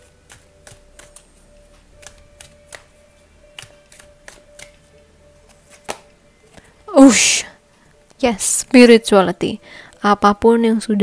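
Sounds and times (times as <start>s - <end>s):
cards being shuffled: 0.0s - 6.7s
faint background music: 0.0s - 11.0s.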